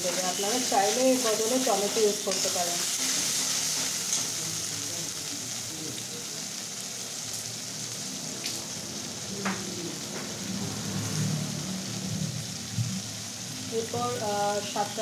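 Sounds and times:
paste sizzling in oil: 0.0 - 9.3.

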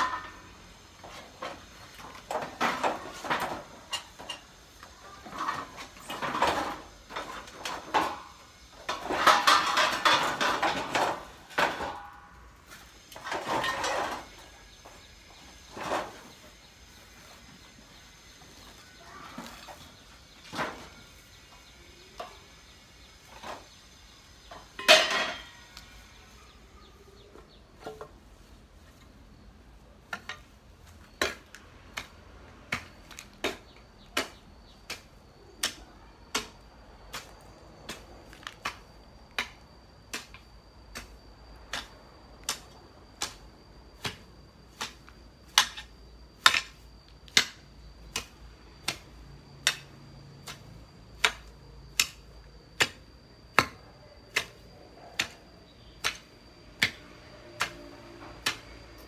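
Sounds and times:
hoe chopping into soil: 56.0 - 57.0.

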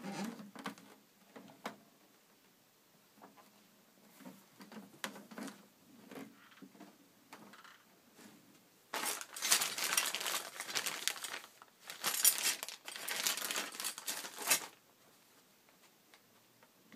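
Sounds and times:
plastic bag crinkling: 8.9 - 14.8.

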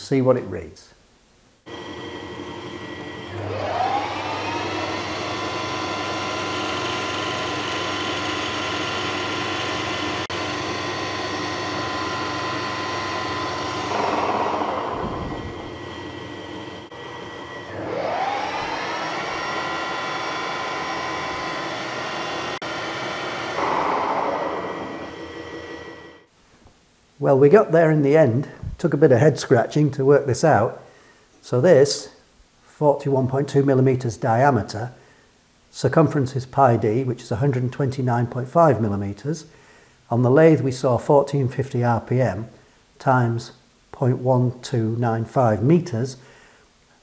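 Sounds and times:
metal lathe whining: 1.7 - 26.3.

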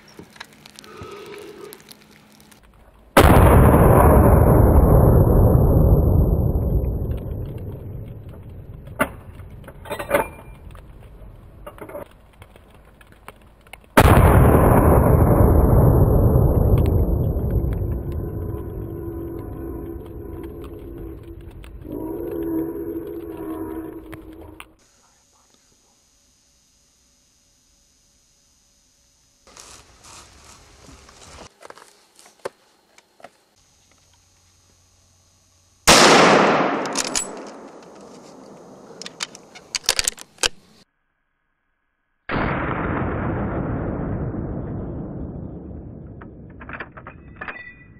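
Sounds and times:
faint clicks and rustles: 0.0 - 3.1, 7.1 - 14.0
faint steady hum: 0.0 - 42.3
rifle shot with rolling echo: 3.2 - 9.2, 14.0 - 19.0, 35.9 - 39.1, 42.3 - 46.6
faint soft clicks and rustles: 10.4 - 14.0.

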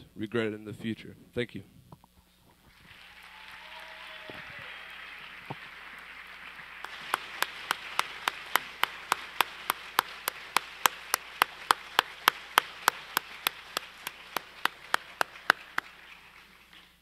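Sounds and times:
audience applauding: 2.7 - 17.0
sharp evenly spaced claps: 5.3 - 17.0.

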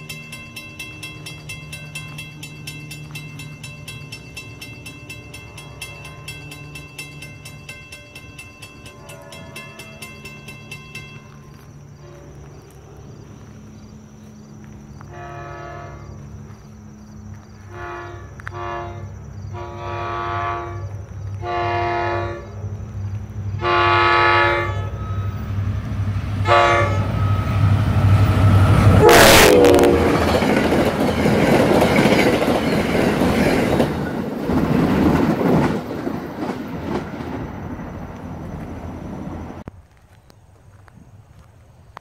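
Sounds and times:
passenger coaches rolling by: 0.0 - 41.9
diesel locomotive engine drone: 0.0 - 42.0
train horn blasts: 8.9 - 10.4, 11.9 - 12.5, 15.1 - 16.2, 17.6 - 22.7, 23.6 - 25.5, 26.4 - 30.4.

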